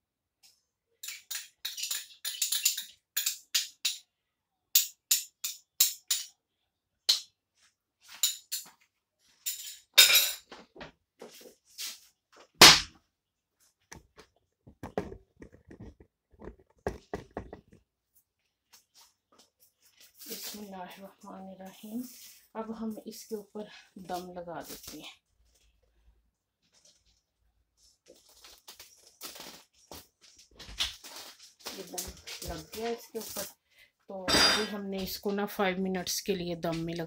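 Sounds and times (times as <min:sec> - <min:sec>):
kitchen utensils clicking on pot: 0:01.0 - 0:04.0
knocks: 0:14.7 - 0:17.8.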